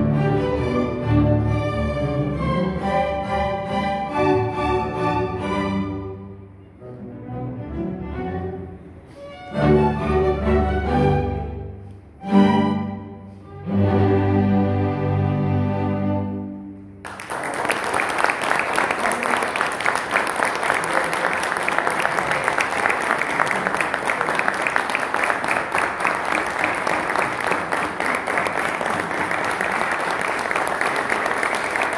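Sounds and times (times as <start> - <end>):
audience applause: 17.0 - 31.9.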